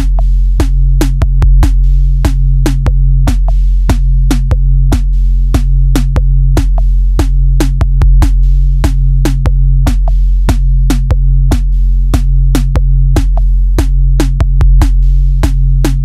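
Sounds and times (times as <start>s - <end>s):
deep bass notes: 0.0s - 16.0s
sharp percussive beat: 0.0s - 16.0s.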